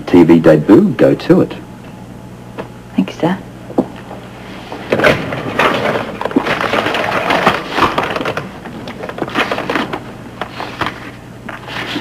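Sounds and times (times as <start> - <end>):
paper rustling: 4.8 - 12.0.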